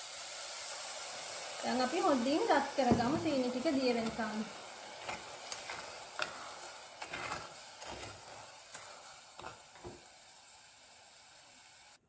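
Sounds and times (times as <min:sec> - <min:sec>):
sugar syrup sizzling: 0:00.0 - 0:12.0
spatula scraping a pan: 0:04.0 - 0:10.1.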